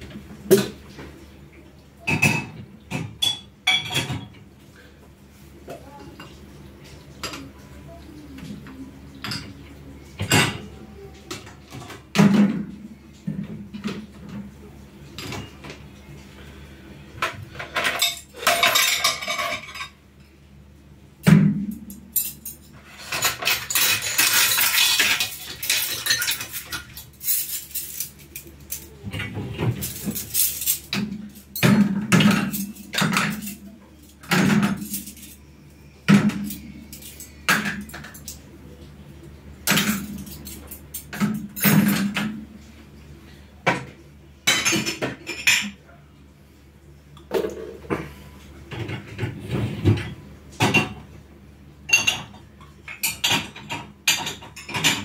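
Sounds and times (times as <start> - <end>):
dishes and cutlery clattering: 2.0 - 4.4, 8.4 - 9.6, 10.2 - 14.5, 15.2 - 15.7, 17.2 - 20.0, 21.3 - 35.4, 36.1 - 38.4, 39.6 - 42.4, 43.7 - 45.8, 47.3 - 51.1, 51.9 - 55.0.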